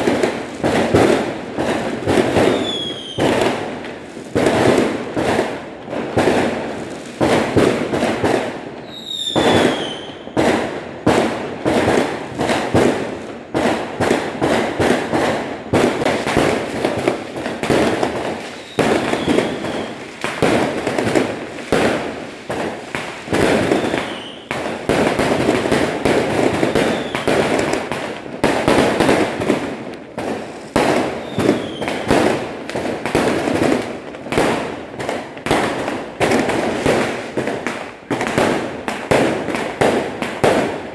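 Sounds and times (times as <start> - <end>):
fireworks bangs and crackles: 0.0 - 40.9
falling firework whistle: 2.3 - 3.6, 8.8 - 10.4, 18.0 - 21.0, 23.3 - 24.6, 26.5 - 27.7, 30.9 - 32.2.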